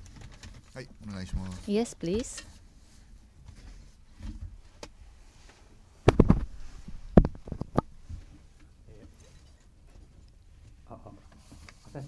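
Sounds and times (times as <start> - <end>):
microphone handling thumps and clicks: 6.0 - 8.4.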